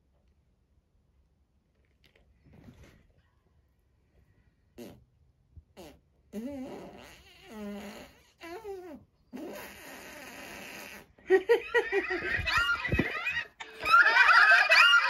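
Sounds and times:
cartoon fart sound effects: 4.8 - 5.1, 5.7 - 11.4, 12.2 - 13.5
laughing: 11.0 - 15.0.

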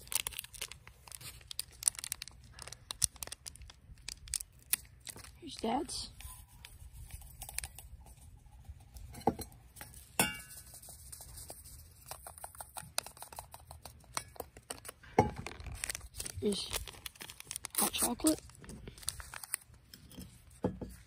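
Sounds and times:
packets rustling: 0.0 - 6.7, 14.5 - 19.8.

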